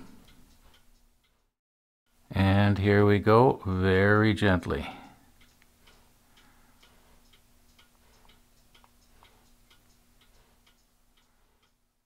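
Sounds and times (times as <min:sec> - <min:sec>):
faint ticking: 0:00.0 - 0:01.5, 0:04.0 - 0:12.0.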